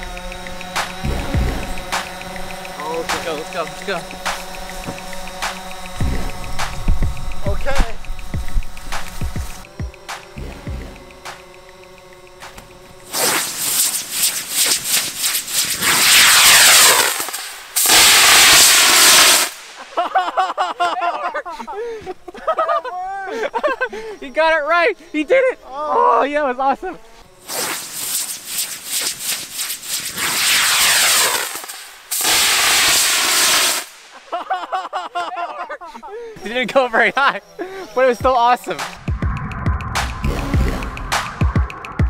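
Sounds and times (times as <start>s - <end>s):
firework rushing hiss: 0.0s - 20.1s, 27.4s - 34.3s.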